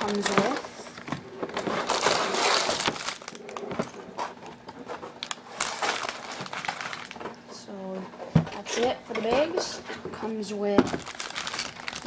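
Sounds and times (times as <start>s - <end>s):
plastic bags crinkling: 0.0s - 4.3s, 4.9s - 7.4s, 10.7s - 12.0s.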